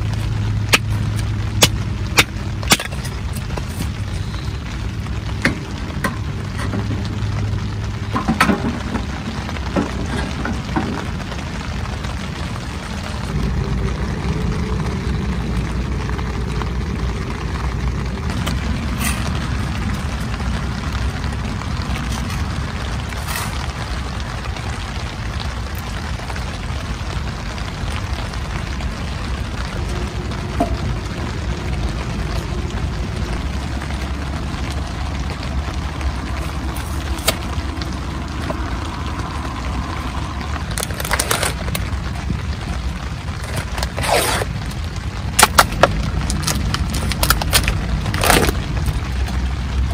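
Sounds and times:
steady low rumble: 0.0s - 49.9s.

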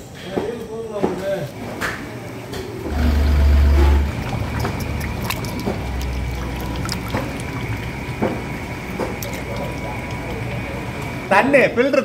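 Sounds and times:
deep low rumble: 2.9s - 9.0s
curry sizzling and bubbling: 2.9s - 11.7s.

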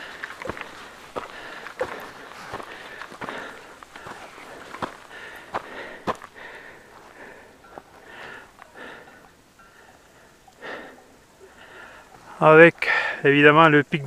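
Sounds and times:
person breathing and sniffing: 0.0s - 9.2s.

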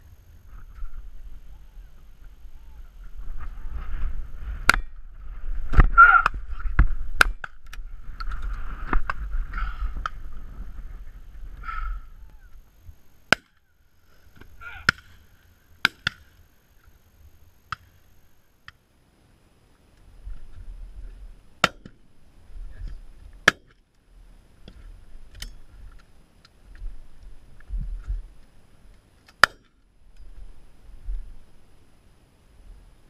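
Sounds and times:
wind on microphone: 0.0s - 13.0s, 26.8s - 28.4s.

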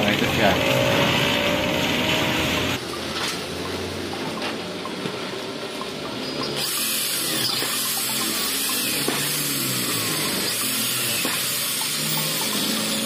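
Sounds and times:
electric drill whirring: 6.5s - 13.0s.

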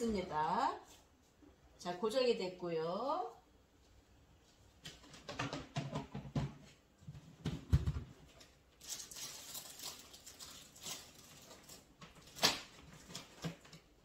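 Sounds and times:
rustling: 8.4s - 13.8s.

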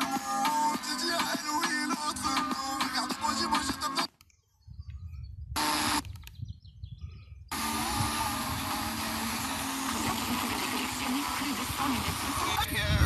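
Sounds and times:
radio station audio: 0.0s - 4.1s, 7.5s - 13.0s
weak radio station: 7.5s - 13.0s
radio static hiss: 7.6s - 13.0s.

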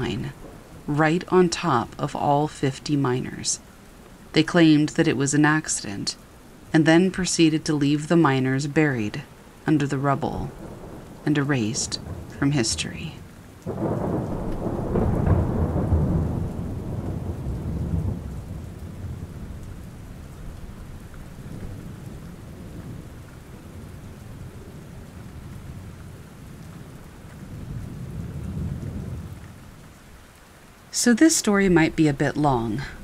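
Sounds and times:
thunder rumbling: 0.0s - 3.6s, 10.0s - 30.0s, 31.6s - 33.0s
steady rain: 0.0s - 33.0s.

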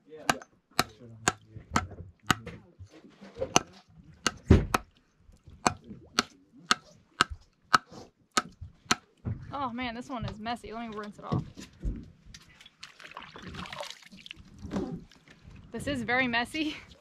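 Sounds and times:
hammer knocking on shell: 0.3s - 2.5s.

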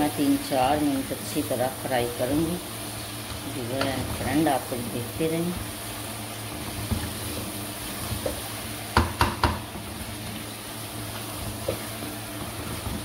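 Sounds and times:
food sizzling in a wok: 0.0s - 13.0s
spatula knocking on pan: 8.2s - 9.7s.

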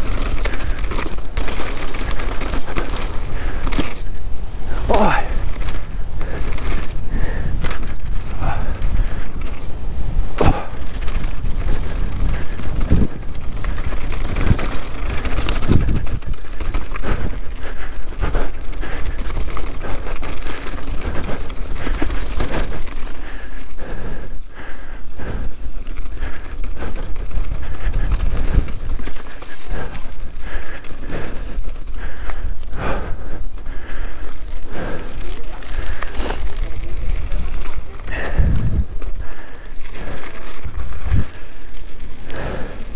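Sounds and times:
wind on microphone: 0.0s - 23.1s, 36.6s - 42.9s
bike knocks and clacks: 0.0s - 42.4s
tyres crunching on loose ground: 0.0s - 42.9s.

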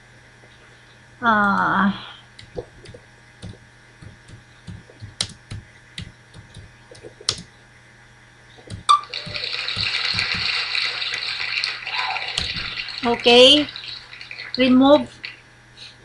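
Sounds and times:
keyboard keystrokes: 2.4s - 7.5s.

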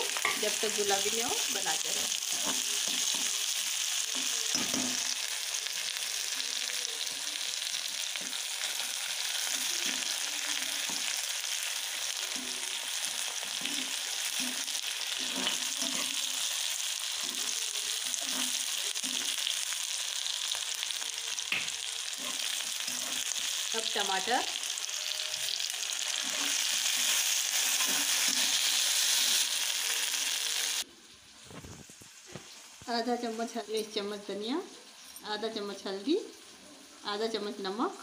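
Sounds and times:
vegetables sizzling in hot oil: 0.0s - 38.0s
metal spatula stirring: 12.1s - 19.5s, 22.1s - 23.6s, 25.6s - 29.4s.

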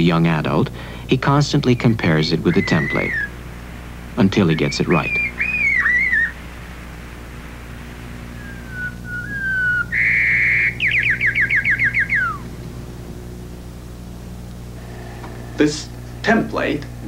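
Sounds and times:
sparrow singing: 1.5s - 3.4s, 4.2s - 6.4s, 8.3s - 12.6s.

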